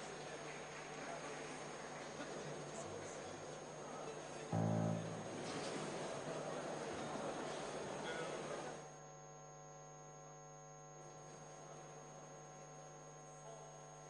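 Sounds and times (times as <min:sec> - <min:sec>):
faint electrical mains hum: 0:00.0 - 0:14.0.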